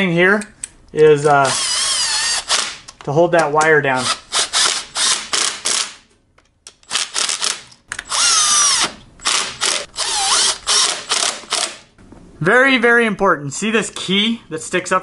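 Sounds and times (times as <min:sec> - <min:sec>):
impact driver rattling bursts: 0:04.1 - 0:06.0, 0:06.8 - 0:11.9.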